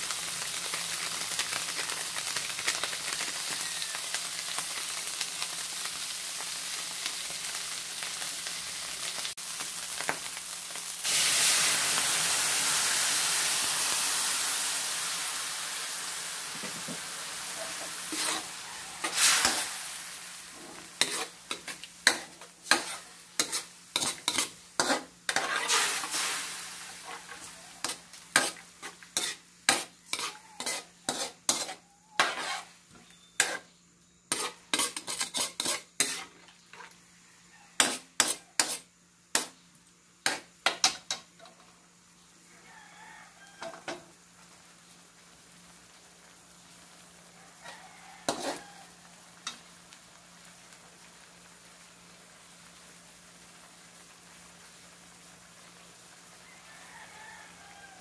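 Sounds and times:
sauce sizzling: 0:00.0 - 0:58.0
metal spatula scraping wok: 0:17.5 - 0:33.7, 0:34.3 - 0:37.0, 0:37.8 - 0:39.5, 0:47.7 - 0:48.8.

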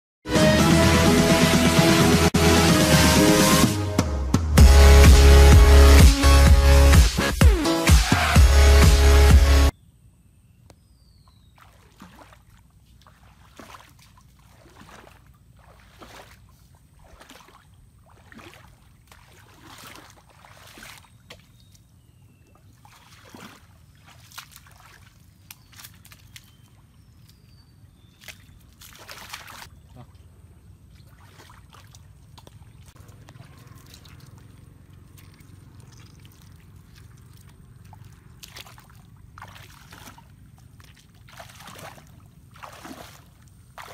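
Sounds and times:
faint bird chirps: 0:09.7 - 0:12.0, 0:21.0 - 0:23.2, 0:25.3 - 0:28.8, 0:29.7 - 0:30.4
water sloshing: 0:11.3 - 0:43.9
wet mud squelching: 0:11.4 - 0:43.9.

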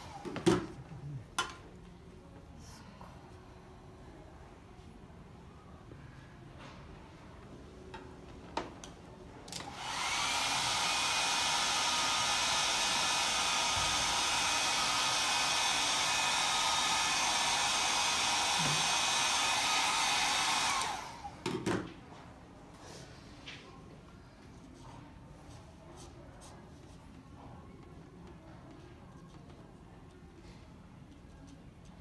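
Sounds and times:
hair dryer blowing: 0:09.5 - 0:21.6.

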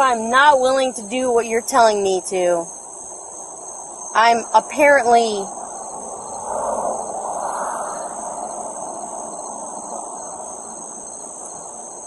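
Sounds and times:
night insects chirping: 0:00.0 - 0:12.0
passing car road noise: 0:05.5 - 0:12.0.

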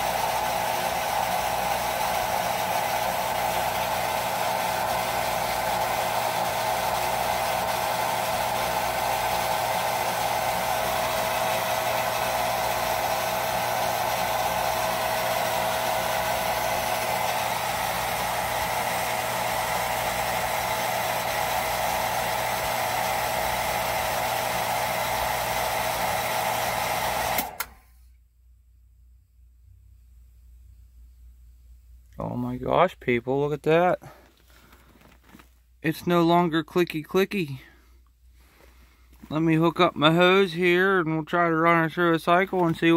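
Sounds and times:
water pump motor whining: 0:00.0 - 0:27.8.

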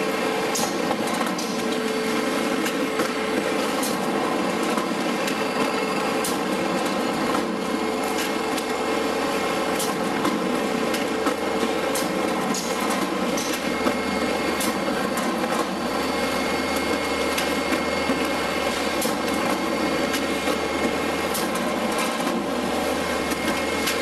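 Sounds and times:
light conveyor clicks: 0:09.8 - 0:13.9, 0:16.7 - 0:22.4.

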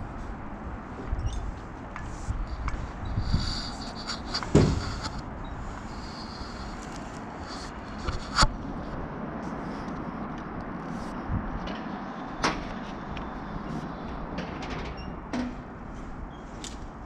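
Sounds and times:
air rushing past camera: 0:00.7 - 0:14.4.

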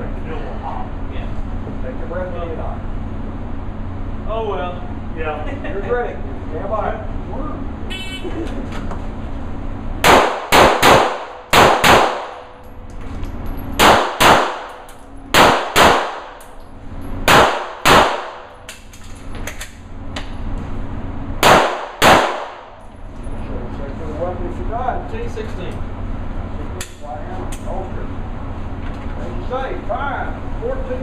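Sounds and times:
pistol shots echoing indoors: 0:10.0 - 0:12.6, 0:13.8 - 0:16.5, 0:17.2 - 0:18.5, 0:21.4 - 0:22.8.

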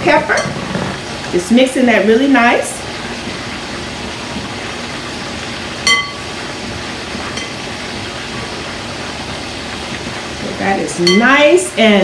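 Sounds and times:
ringing clink against glass: 0:05.9 - 0:06.2.

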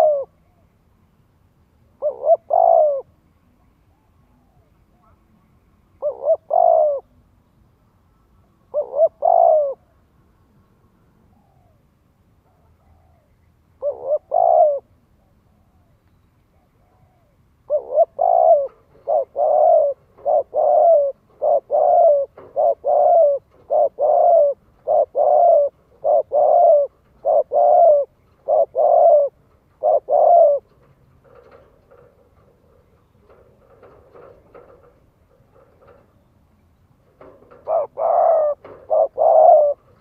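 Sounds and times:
dove cooing: 0:00.0 - 0:00.6, 0:02.0 - 0:03.2, 0:06.0 - 0:07.2, 0:08.7 - 0:10.0, 0:12.4 - 0:15.9, 0:16.5 - 0:36.1, 0:37.0 - 0:40.0.

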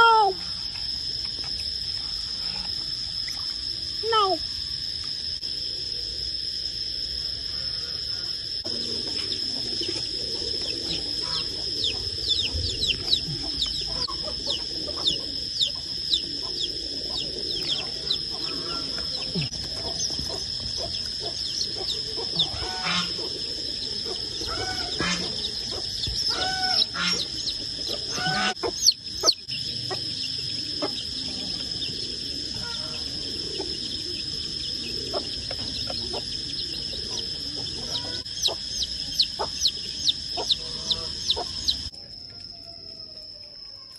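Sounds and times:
steady high-pitched whine: 0:00.0 - 0:42.9
baby chicks cheeping: 0:08.6 - 0:41.9.

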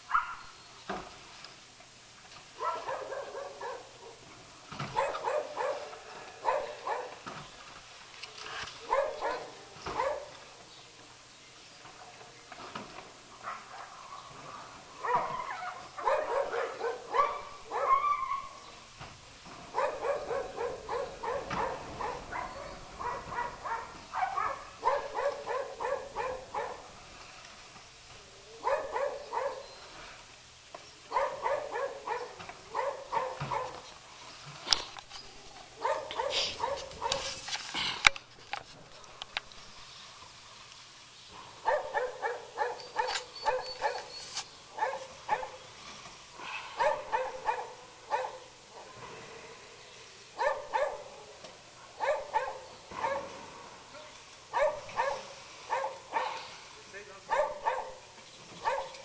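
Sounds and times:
dog barking: 0:00.1 - 0:00.5, 0:02.6 - 0:04.2, 0:04.9 - 0:07.2, 0:08.8 - 0:10.4, 0:13.4 - 0:14.1, 0:15.0 - 0:18.5, 0:19.7 - 0:26.9, 0:28.6 - 0:29.7, 0:31.1 - 0:33.8, 0:35.4 - 0:37.4, 0:41.6 - 0:44.2, 0:44.8 - 0:45.6, 0:46.8 - 0:49.0, 0:50.4 - 0:51.3, 0:52.0 - 0:53.4, 0:54.5 - 0:56.4, 0:57.3 - 0:58.0, 0:58.6 - 0:59.0.

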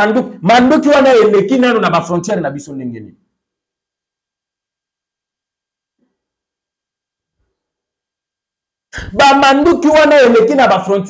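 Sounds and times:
man speaking: 0:00.0 - 0:03.2, 0:09.0 - 0:11.0.

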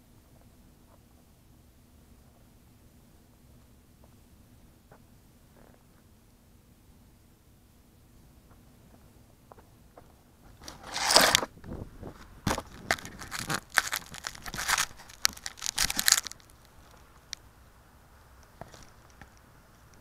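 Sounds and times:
crinkly scrapes and knocks: 0:10.5 - 0:17.3.

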